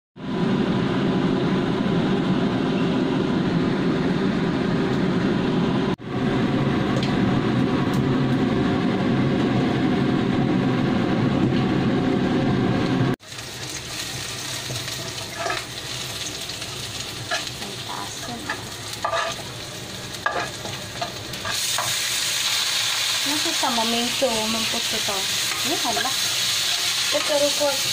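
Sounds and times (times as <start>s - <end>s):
food sizzling: 13.2s - 27.9s
spatula scraping in a wok: 13.6s - 27.9s.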